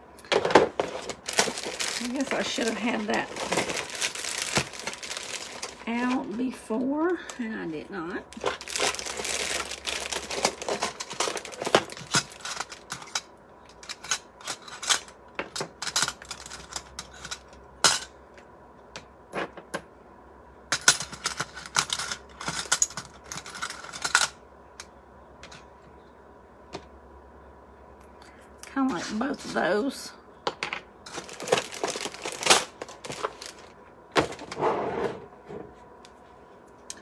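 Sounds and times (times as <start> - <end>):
rustling in plastic bin: 0.3 - 6.7, 8.3 - 13.1, 31.1 - 34.6.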